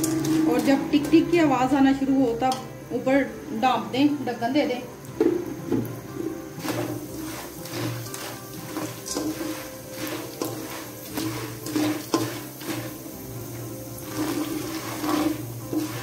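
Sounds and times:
popcorn kernels rattling in oil: 0.0s - 16.0s
steady music: 0.0s - 16.0s
spatula stirring in pan: 6.1s - 16.0s.

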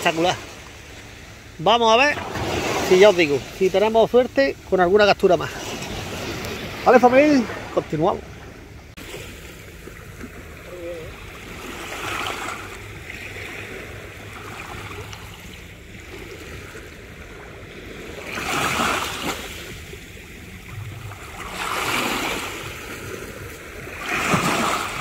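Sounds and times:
sea waves breaking: 0.0s - 25.0s.

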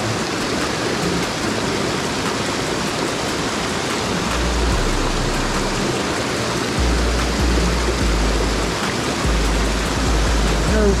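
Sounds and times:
waterfall rushing splash: 0.0s - 11.0s
deep low rumble: 6.8s - 11.0s.

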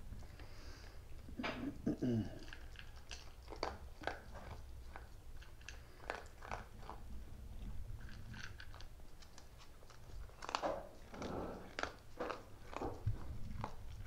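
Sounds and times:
dog chewing and crunching: 0.0s - 14.0s.

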